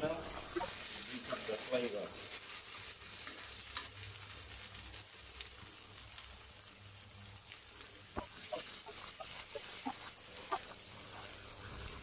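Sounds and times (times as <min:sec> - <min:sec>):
food sizzling in a frying pan: 0:00.0 - 0:12.0.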